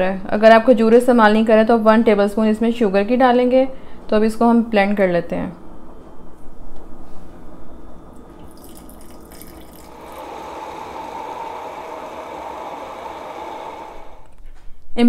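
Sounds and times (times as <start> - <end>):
hand blender motor whine: 9.6 - 14.4.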